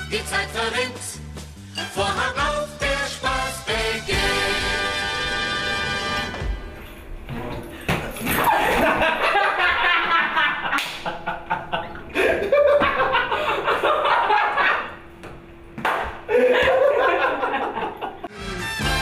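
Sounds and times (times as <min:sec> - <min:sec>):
people laughing loudly: 0:08.3 - 0:15.0, 0:16.3 - 0:18.3
shrieks of laughter: 0:16.3 - 0:18.3.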